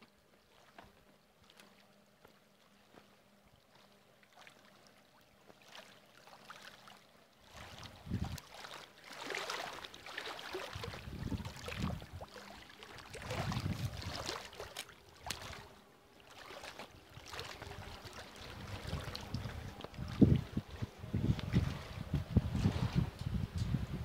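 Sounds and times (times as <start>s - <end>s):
waves lapping against wall: 0.0s - 24.0s
wind buffeting microphone: 7.7s - 8.4s, 10.8s - 12.3s, 13.2s - 14.4s, 17.6s - 24.0s.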